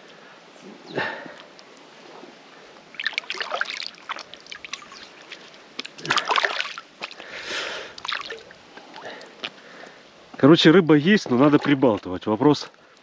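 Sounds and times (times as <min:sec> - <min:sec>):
river water splashing: 0:01.5 - 0:10.1.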